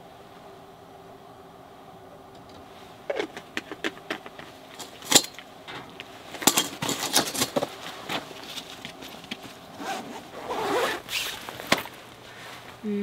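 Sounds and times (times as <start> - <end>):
camping gear clicking and knocking: 2.4 - 9.6, 10.6 - 12.0.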